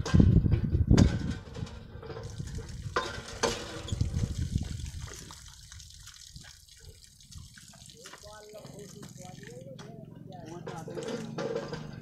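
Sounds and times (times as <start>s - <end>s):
water splashing from pump spout: 1.5s - 9.9s, 10.6s - 11.8s
pump handle knocks: 10.6s - 12.0s.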